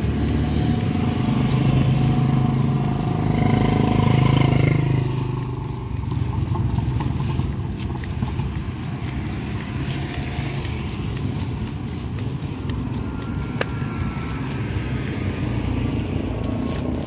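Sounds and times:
low rumble of slow ride: 0:00.0 - 0:17.0
wind on microphone: 0:05.9 - 0:17.0.

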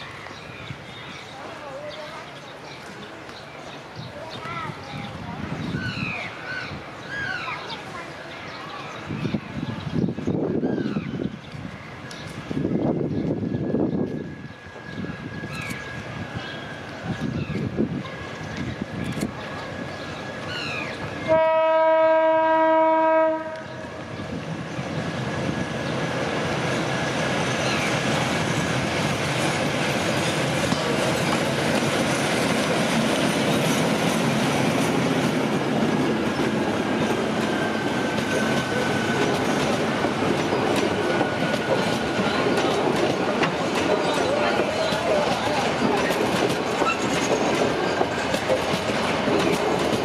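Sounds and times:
train passing on rails: 0:00.0 - 0:50.0
locomotive horn blast: 0:21.2 - 0:23.8.

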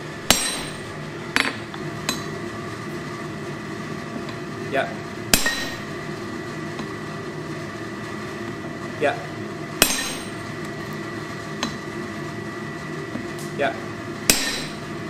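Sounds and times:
hammer blows on anvil: 0:00.2 - 0:02.3, 0:05.3 - 0:06.0, 0:09.8 - 0:10.4, 0:14.3 - 0:14.9.

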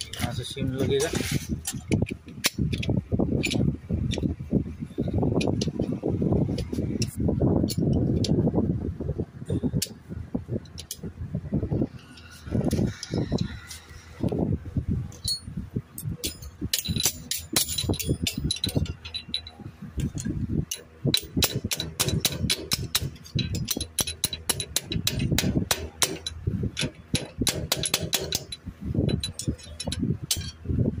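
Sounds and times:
hammer tapping on metal: 0:21.1 - 0:30.5.

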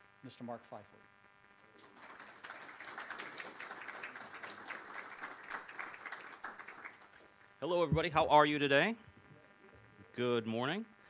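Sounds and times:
audience applauding: 0:01.7 - 0:07.3.

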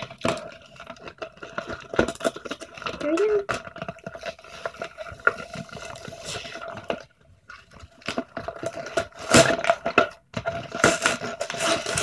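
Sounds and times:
cardboard scraping and rustling: 0:08.0 - 0:12.0.

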